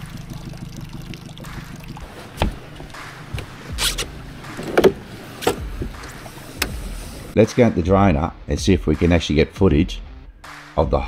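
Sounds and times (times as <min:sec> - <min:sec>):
knocks and clunks on metal boat: 0:02.2 - 0:03.6, 0:04.4 - 0:06.8.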